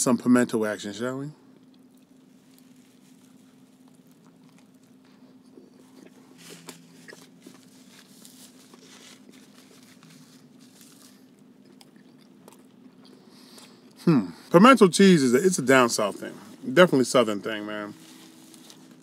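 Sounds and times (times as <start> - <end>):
faint steady hum: 0.0 - 19.0
crunching while chewing: 1.4 - 14.0, 18.0 - 19.0.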